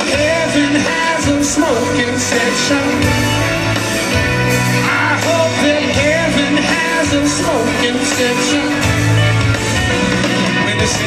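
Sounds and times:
bass notes: 0:00.0 - 0:11.0
electric guitar: 0:00.0 - 0:11.0.

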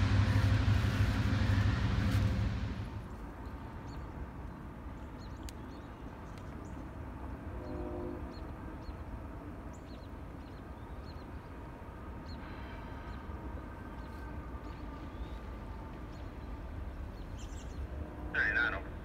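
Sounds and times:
distant freight train rumble: 0:00.0 - 0:19.0
small birds chirping: 0:07.6 - 0:11.6, 0:12.2 - 0:18.0.

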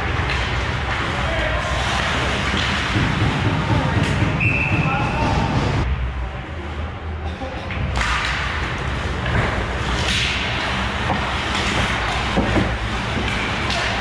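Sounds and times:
hockey sticks and puck clacking: 0:00.0 - 0:04.9, 0:07.7 - 0:14.0.

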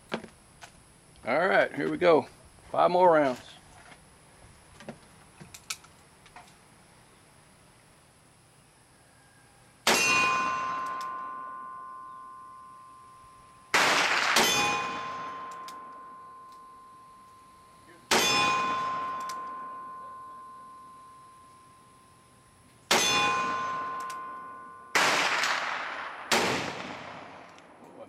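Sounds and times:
bullets clanging on steel targets: 0:09.9 - 0:12.0, 0:13.8 - 0:17.3, 0:18.0 - 0:21.0, 0:22.9 - 0:25.9.

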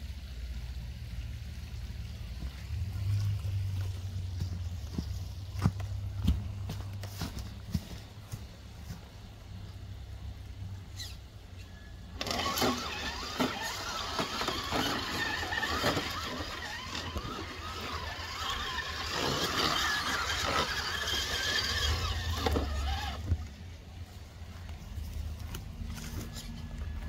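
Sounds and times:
rc truck motor whining: 0:10.9 - 0:11.2, 0:12.0 - 0:23.5.

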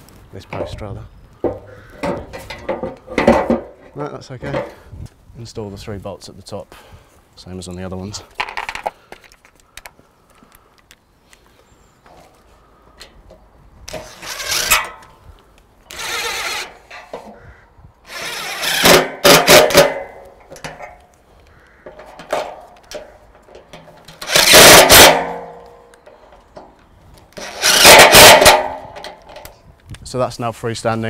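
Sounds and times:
cordless driver driving bolts: 0:13.9 - 0:15.1, 0:15.9 - 0:17.4, 0:18.1 - 0:21.0, 0:21.9 - 0:25.6, 0:27.3 - 0:29.5.

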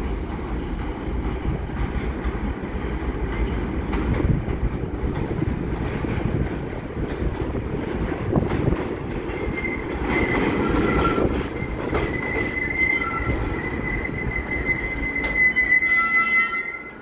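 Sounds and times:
train rumbling on rails: 0:00.0 - 0:17.0
high-pitched brake squeal: 0:09.4 - 0:17.0.

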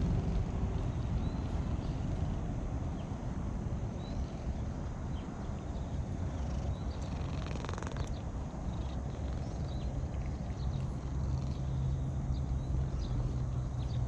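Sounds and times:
cat purring: 0:00.0 - 0:02.6, 0:06.2 - 0:14.0.

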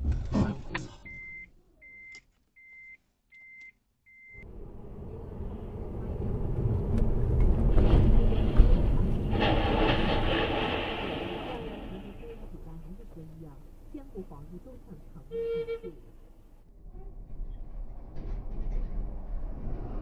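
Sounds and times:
electronic warning beeps: 0:01.1 - 0:04.4
car rumble on road: 0:04.4 - 0:20.0.

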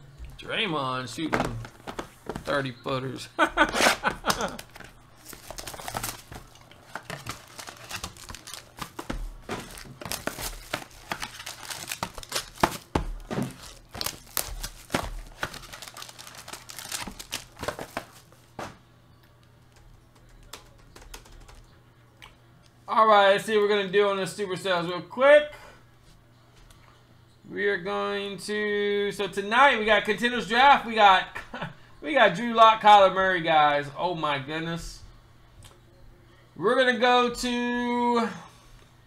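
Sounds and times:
cardboard and foil crinkling: 0:03.6 - 0:18.8.

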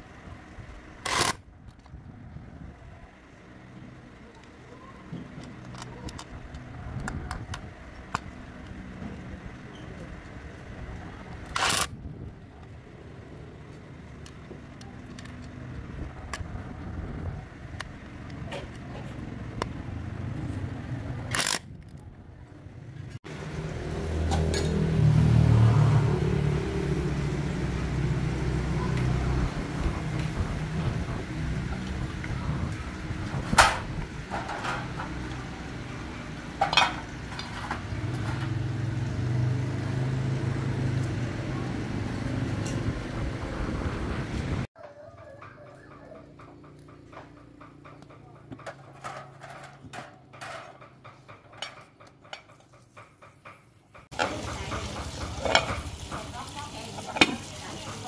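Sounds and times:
metal parts clinking: 0:48.4 - 0:52.8.

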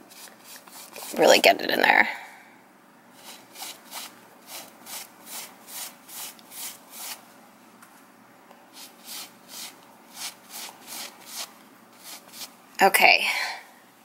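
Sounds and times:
stiff brush scrubbing fabric: 0:00.0 - 0:01.5, 0:03.2 - 0:07.2, 0:08.8 - 0:12.5.

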